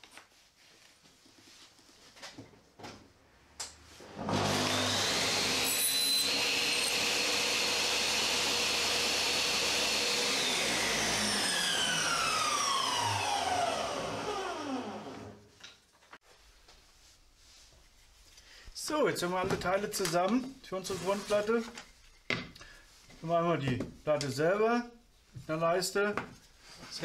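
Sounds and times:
saw cutting wood: 4.1s - 15.4s
table saw running: 4.1s - 15.4s.

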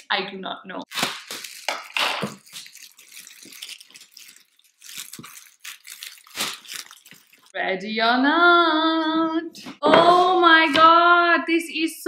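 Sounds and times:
plastic wrap crinkling: 0.9s - 7.6s.

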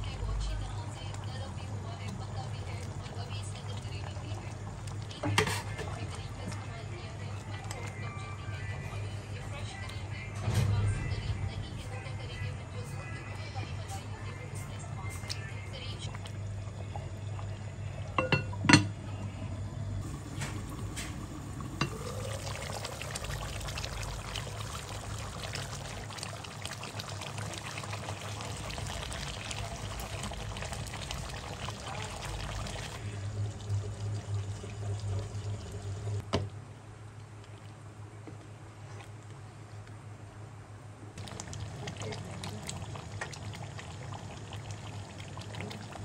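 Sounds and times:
curry sauce bubbling in a pan: 0.2s - 6.8s, 20.0s - 36.2s, 41.2s - 46.0s.

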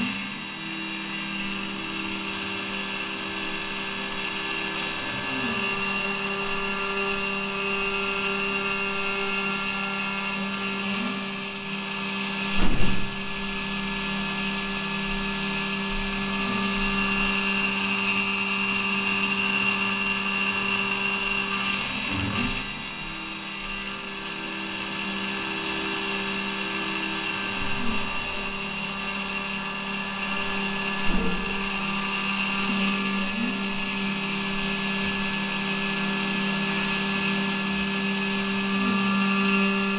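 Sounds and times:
low machine hum: 0.0s - 39.9s
spindle high whine: 0.0s - 39.9s
sharp knock: 12.5s - 13.2s.

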